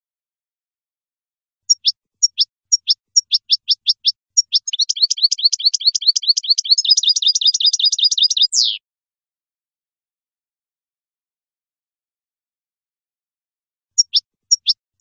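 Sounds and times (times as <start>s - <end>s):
finch singing: 1.7s - 8.8s, 14.0s - 14.8s.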